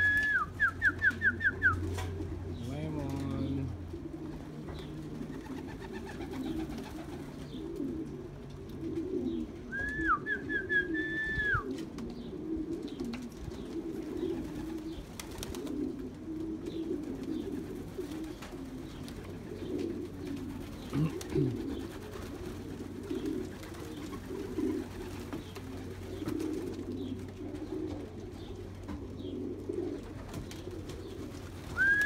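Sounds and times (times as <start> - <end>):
pigeons cooing: 0.0 - 32.0
high whistled call: 31.8 - 32.0.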